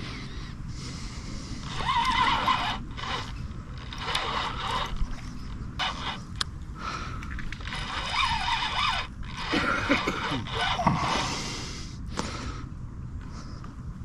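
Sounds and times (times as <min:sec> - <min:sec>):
fishing reel drag buzzing: 0:00.0 - 0:06.4, 0:07.5 - 0:12.0.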